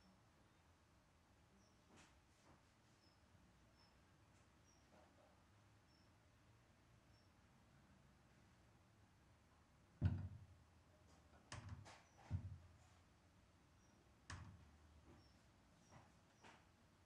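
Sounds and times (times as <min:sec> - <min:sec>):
dull thumps: 0:10.0 - 0:10.6, 0:11.5 - 0:12.8.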